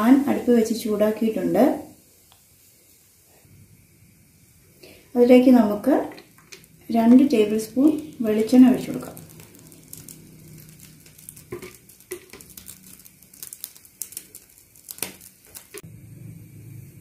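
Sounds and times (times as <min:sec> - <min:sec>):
low steady hum: 0:00.0 - 0:17.0
oil pouring: 0:06.2 - 0:06.9, 0:08.0 - 0:15.8.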